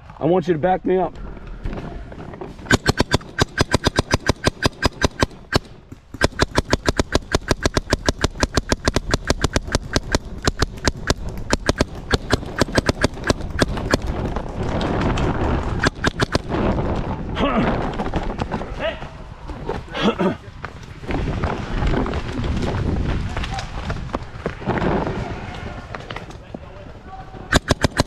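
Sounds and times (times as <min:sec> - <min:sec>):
paintball marker rapid shots: 0:02.7 - 0:16.8, 0:27.5 - 0:28.0
steady rushing noise: 0:02.7 - 0:17.4.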